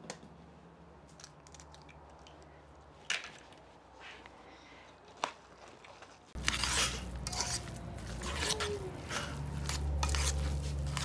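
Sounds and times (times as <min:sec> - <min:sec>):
hand squelching wet mash: 0:05.4 - 0:11.0.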